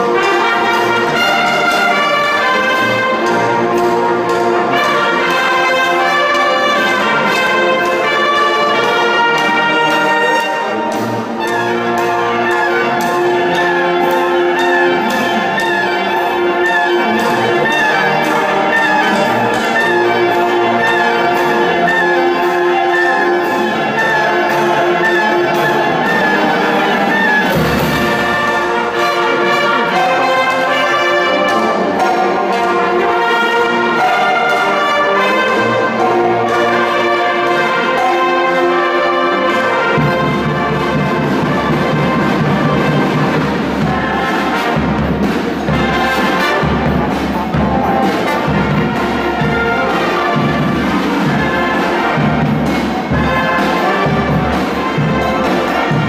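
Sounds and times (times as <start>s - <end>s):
marching brass band playing: 0.0s - 56.0s.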